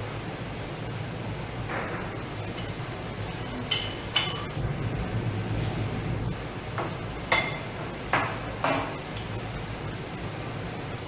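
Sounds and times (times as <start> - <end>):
low room hum: 0.0 - 11.0
utensils clinking against dishes: 3.4 - 4.6.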